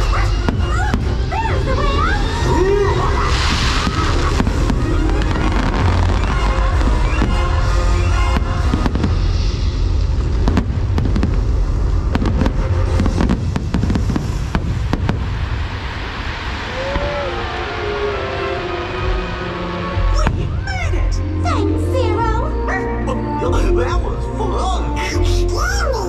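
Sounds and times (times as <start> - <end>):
fireworks bangs and crackles: 0.0 - 20.9
music playing: 0.0 - 26.0.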